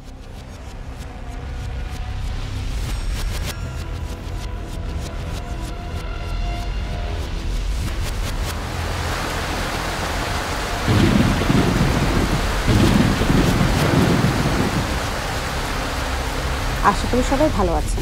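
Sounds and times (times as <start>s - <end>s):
steady rain hiss: 6.6s - 18.0s
thunder rolling: 8.9s - 17.8s.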